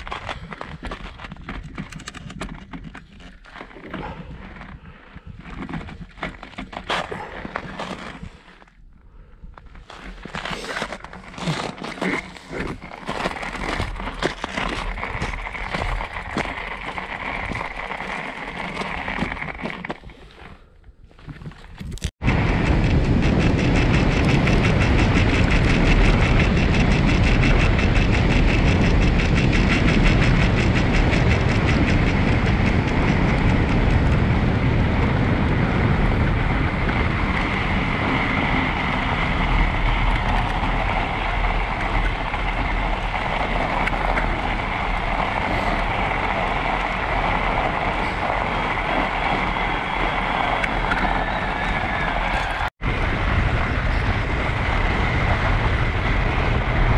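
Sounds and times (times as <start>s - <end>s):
tyres rolling over snow: 0.0s - 8.8s, 9.6s - 56.9s
wind on microphone: 21.7s - 56.9s.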